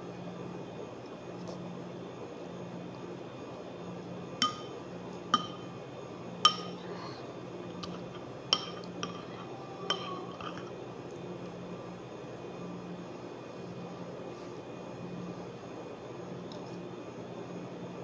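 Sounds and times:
steady low hum: 0:00.0 - 0:18.0
spoon clinking on ceramic bowl: 0:04.4 - 0:04.8, 0:05.4 - 0:05.7, 0:06.4 - 0:06.8, 0:07.8 - 0:10.7.

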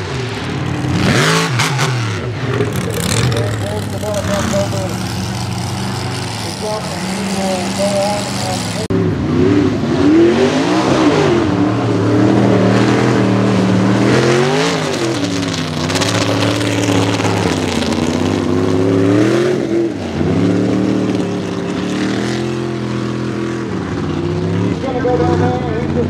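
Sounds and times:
truck engine revving hard: 0:00.0 - 0:26.0.

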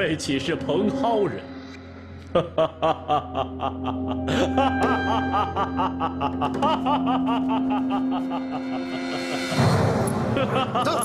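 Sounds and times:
background music: 0:00.0 - 0:11.0
man laughing: 0:02.2 - 0:09.7, 0:10.3 - 0:11.0.

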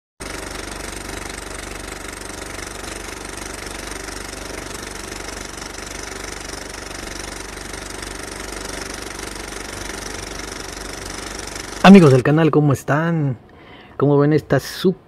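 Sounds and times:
engine idling with knocking: 0:00.2 - 0:12.2.

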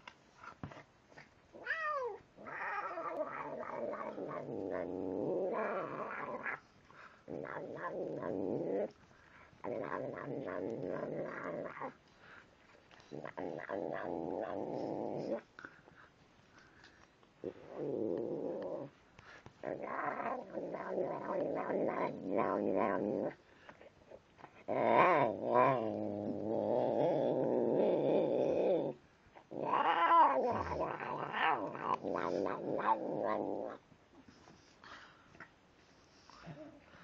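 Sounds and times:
cat growling and moaning: 0:01.5 - 0:06.7, 0:07.3 - 0:09.0, 0:09.6 - 0:12.0, 0:13.0 - 0:15.5, 0:17.4 - 0:18.9, 0:19.6 - 0:23.4, 0:24.6 - 0:33.8.

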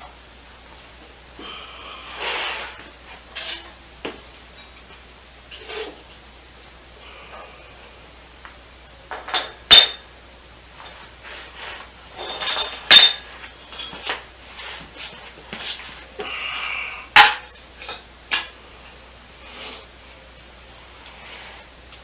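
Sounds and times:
metal tools clanking on steel: 0:09.1 - 0:10.0, 0:12.2 - 0:14.2.

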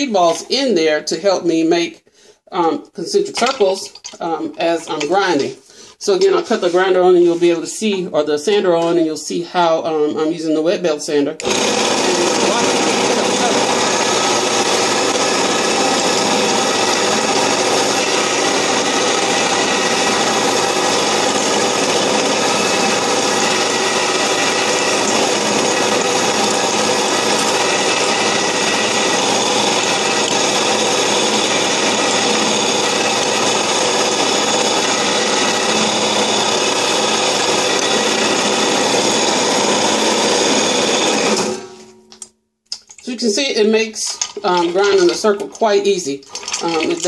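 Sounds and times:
belt sander running: 0:11.4 - 0:42.0
glass grinding on sanding belt: 0:11.7 - 0:41.4, 0:44.1 - 0:47.0.

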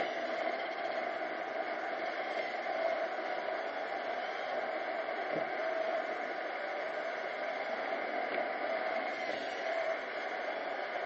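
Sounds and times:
robot vacuum whirring: 0:08.2 - 0:10.3.

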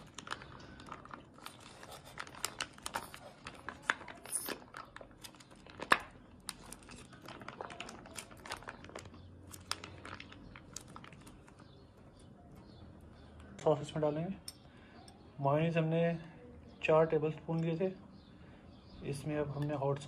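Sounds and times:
plastic pouch crinkling: 0:00.0 - 0:11.8.

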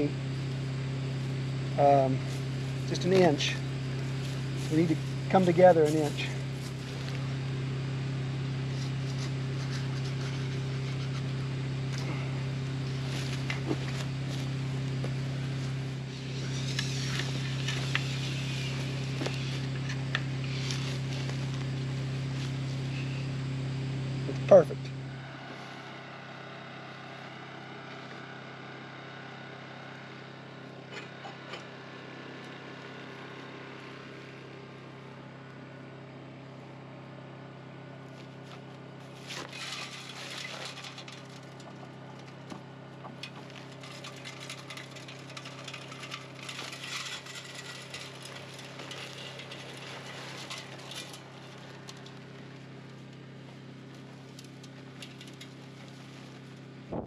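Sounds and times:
cement mixer running: 0:00.0 - 0:57.0
concrete mix rushing from bags: 0:43.6 - 0:51.6.

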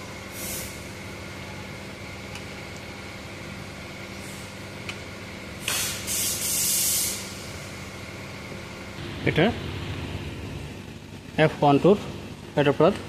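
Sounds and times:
workshop machinery humming: 0:00.0 - 0:13.0
short loud hisses: 0:05.6 - 0:07.4.

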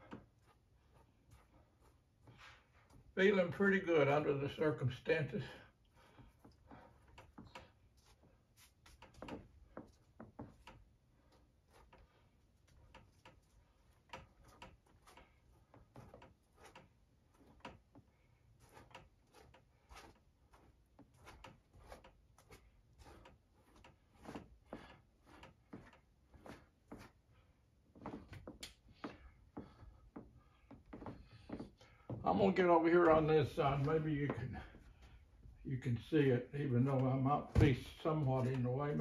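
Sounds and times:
brush taps and rubs on canvas: 0:05.9 - 0:35.6.

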